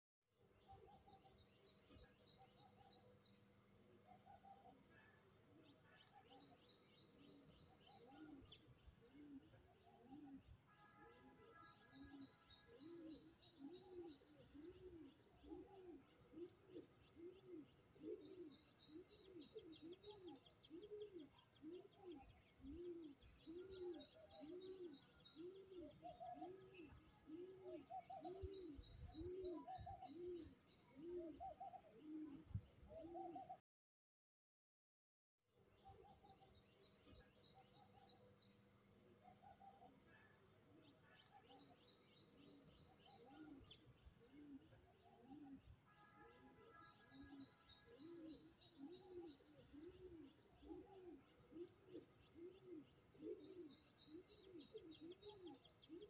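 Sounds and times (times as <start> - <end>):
bird chirps: 0.6 - 33.5, 35.8 - 56.0
low cooing: 48.8 - 56.0.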